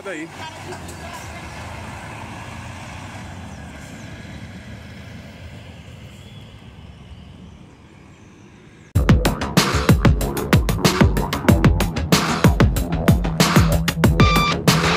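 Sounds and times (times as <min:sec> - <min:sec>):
bus diesel engine rumbling: 0:00.0 - 0:08.3.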